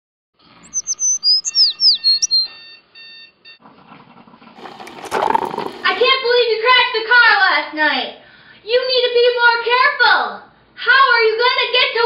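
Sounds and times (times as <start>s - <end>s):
birds chirping: 0.5s - 2.5s.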